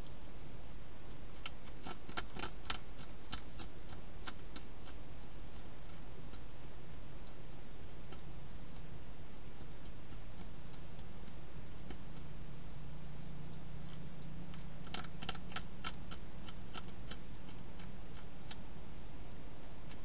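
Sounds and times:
low hum and hiss: 0.0 - 20.0
hedgehog crunching dry food: 1.4 - 7.4, 8.0 - 18.6.

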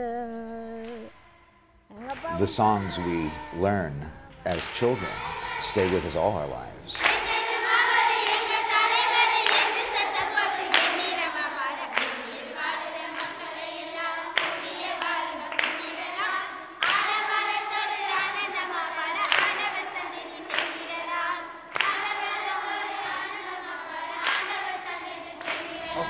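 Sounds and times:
group singing: 0.0 - 26.0.

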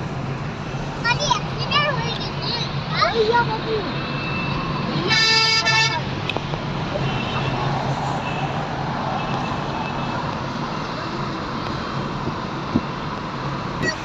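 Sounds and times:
car road noise and engine hum: 0.0 - 14.0
car horn honk: 4.0 - 6.1, 7.0 - 7.6.

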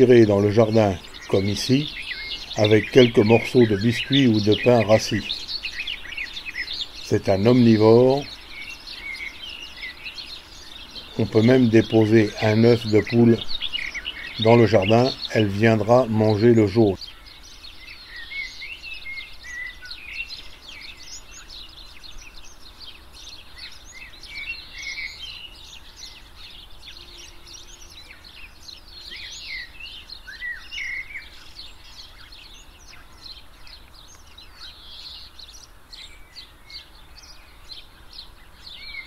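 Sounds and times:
faint background noise: 0.0 - 39.0
small birds chirping and singing: 0.0 - 39.0.

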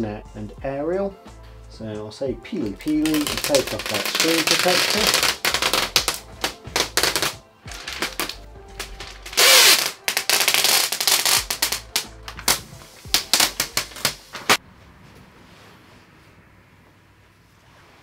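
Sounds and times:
plastic film crackling and rustling: 2.6 - 14.6.

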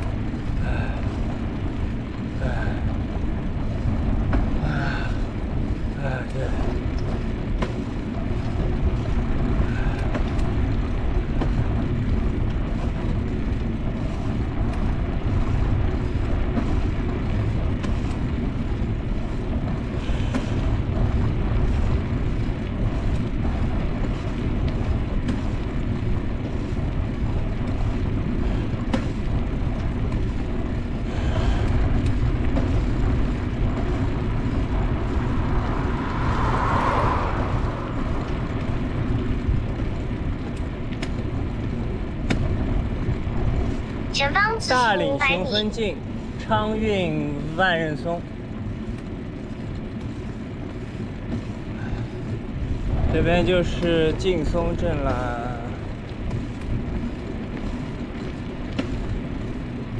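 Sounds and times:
tyre and road noise: 0.0 - 59.9
wind buffeting microphone: 0.0 - 59.9.

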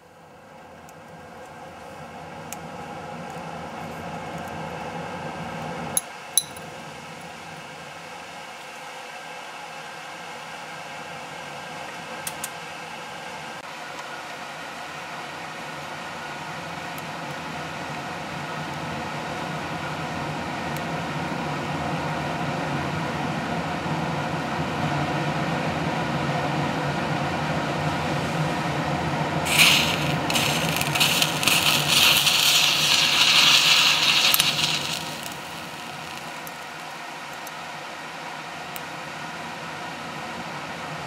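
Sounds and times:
burning metal hissing: 29.4 - 37.1
loud crackling sizzle: 29.4 - 37.8.

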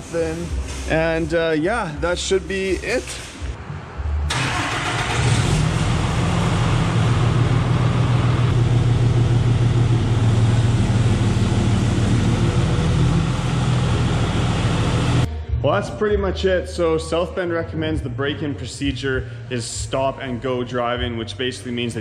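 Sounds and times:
diesel engine starting and idling: 4.0 - 15.3.

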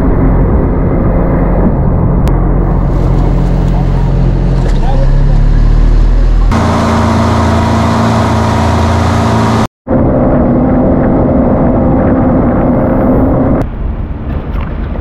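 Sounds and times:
outboard motor running: 2.3 - 9.7.

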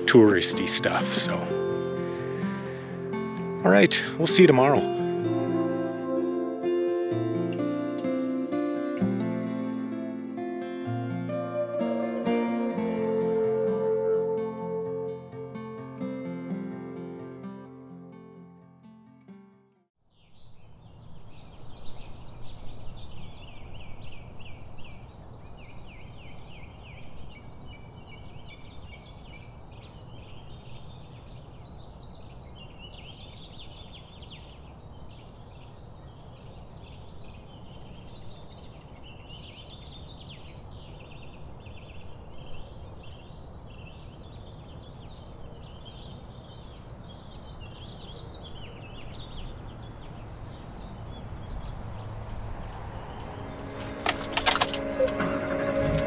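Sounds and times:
small birds chirping and trilling: 20.0 - 55.6.

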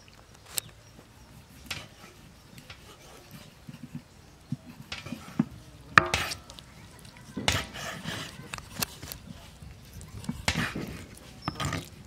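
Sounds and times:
knives chopping on wooden boards: 4.9 - 6.4.

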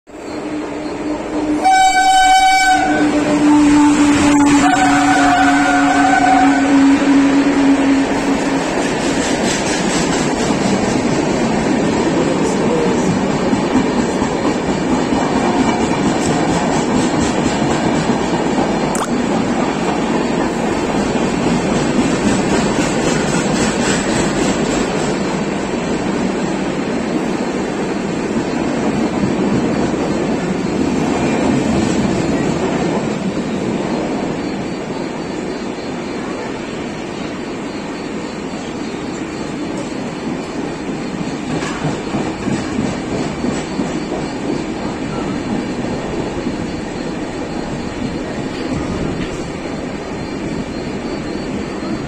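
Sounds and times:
train rumbling past: 0.1 - 52.0
train horn blasts: 1.0 - 8.6.

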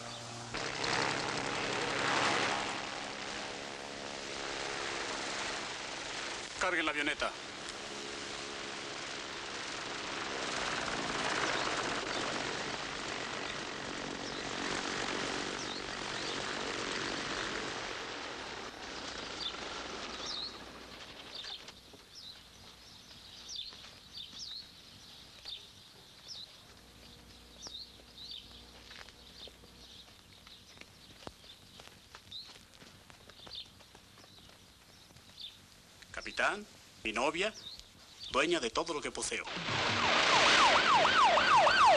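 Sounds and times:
birds chirping: 0.0 - 1.2, 10.8 - 17.0, 18.7 - 39.4
propeller plane engine: 0.0 - 23.6, 26.2 - 30.8.

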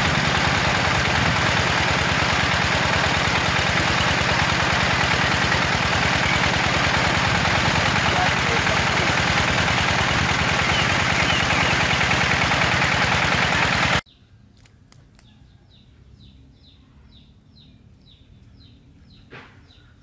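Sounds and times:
small water pump engine running: 0.0 - 14.0
bird chirping: 10.5 - 12.2, 14.1 - 20.0.

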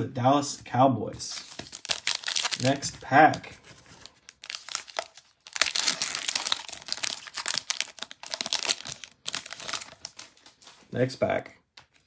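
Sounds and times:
foil wrapper tearing and crinkling: 1.5 - 2.8, 3.9 - 10.7.

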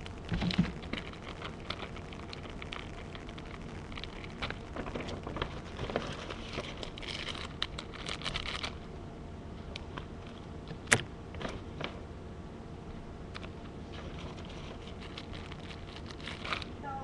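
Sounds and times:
scattered clicks: 0.0 - 8.8
plastic wrappers crinkling: 0.0 - 8.9, 13.4 - 16.8.

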